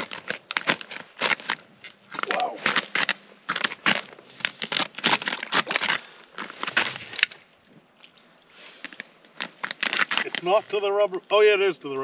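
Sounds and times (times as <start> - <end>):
boots crunching on snow: 0.0 - 7.4.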